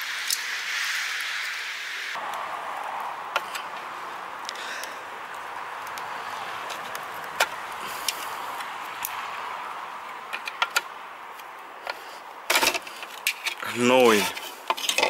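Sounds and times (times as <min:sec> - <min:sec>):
steady hiss: 0:00.0 - 0:10.2.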